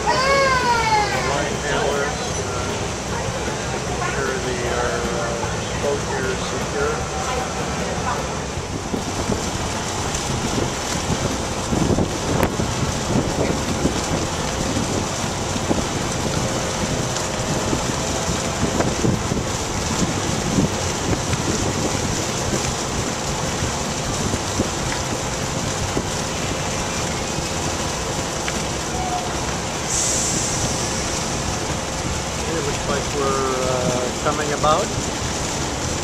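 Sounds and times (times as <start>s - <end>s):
boat engine rush: 0.0s - 36.0s
water rushing: 0.0s - 36.0s
wind buffeting microphone: 0.0s - 36.0s.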